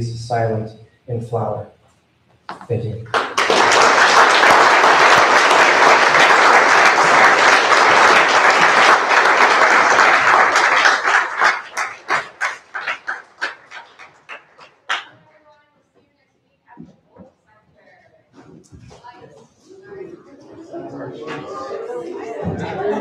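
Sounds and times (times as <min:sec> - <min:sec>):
audience applauding: 0:03.1 - 0:15.2.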